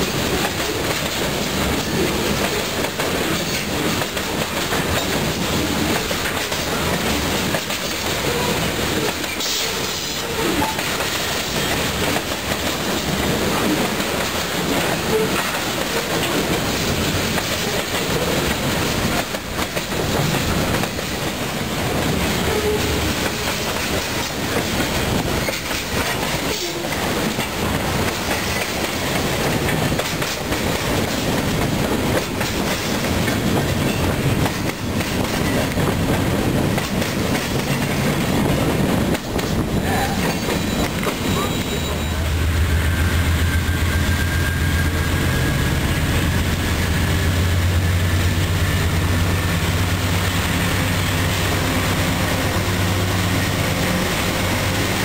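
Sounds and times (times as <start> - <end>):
wheels clacking over rail joints: 0.0 - 42.0
freight train cars rolling past: 0.0 - 55.0.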